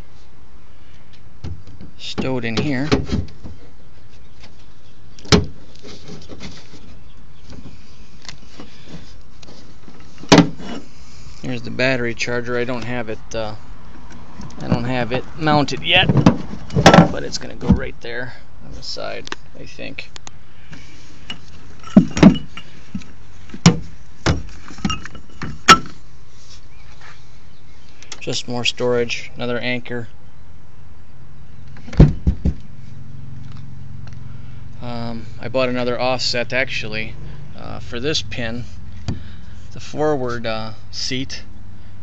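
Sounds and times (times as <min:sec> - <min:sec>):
steady background noise: 0:00.0 - 0:42.0
faint rustling: 0:03.0 - 0:28.3.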